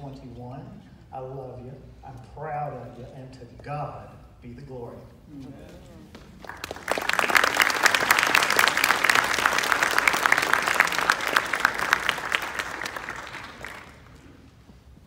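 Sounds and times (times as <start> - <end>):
audience applauding: 6.1 - 14.4.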